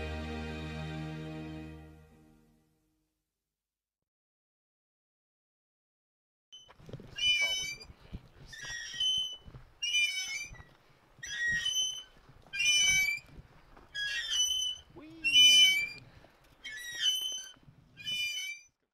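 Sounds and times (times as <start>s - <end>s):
metal chain swing squeaking: 6.6s - 7.9s, 8.5s - 13.3s, 13.9s - 18.8s.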